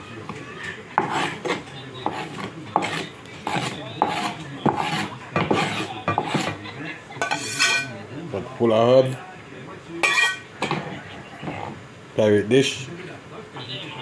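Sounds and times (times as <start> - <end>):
knife scraping cutting board: 1.0 - 6.6, 7.2 - 8.0, 10.0 - 11.8.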